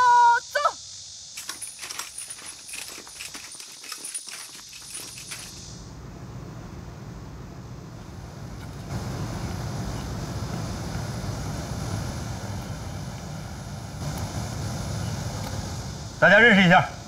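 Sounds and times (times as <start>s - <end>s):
boots and gear clattering: 1.4s - 5.7s.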